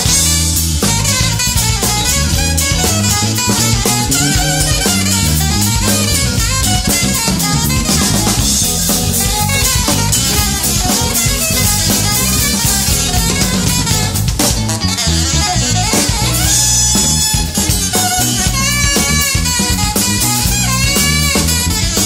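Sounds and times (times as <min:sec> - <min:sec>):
snare drum: 0:00.0 - 0:14.8
bass drum: 0:00.0 - 0:22.0
electric bass: 0:00.0 - 0:22.0
electric guitar: 0:00.0 - 0:22.0
saxophone: 0:00.0 - 0:22.0.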